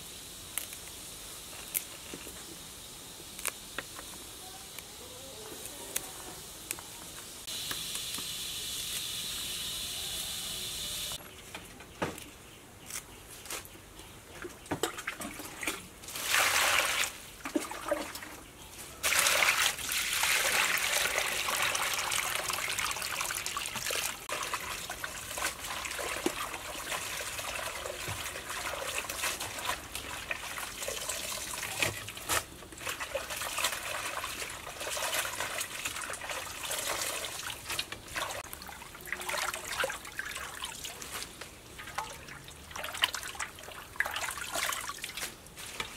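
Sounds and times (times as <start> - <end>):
steady hiss: 0.0 - 11.2
water splashing in metal basin: 14.8 - 18.4, 19.0 - 41.0, 41.8 - 45.2
stream of water pouring: 16.0 - 18.3, 19.0 - 41.2, 41.8 - 45.2.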